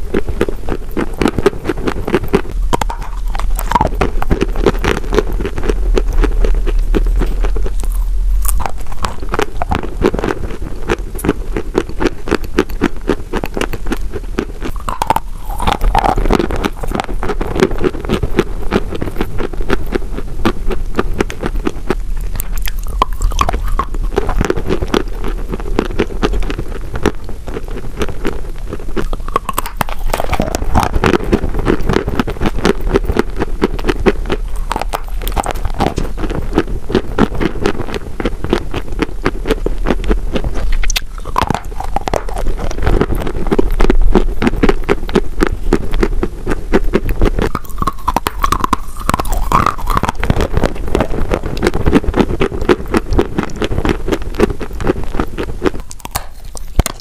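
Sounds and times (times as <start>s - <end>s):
chewing chalk crunches: 0.0s - 57.0s.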